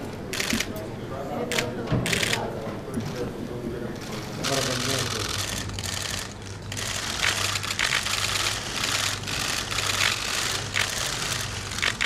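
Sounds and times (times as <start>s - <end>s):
camera shutters clicking: 0.3s - 0.7s, 1.5s - 2.4s, 4.4s - 12.0s
steady low hum: 2.2s - 12.0s.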